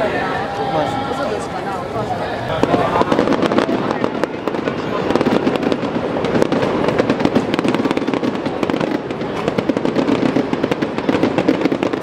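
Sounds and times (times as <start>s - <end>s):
fireworks bursting and crackling: 2.4s - 12.0s.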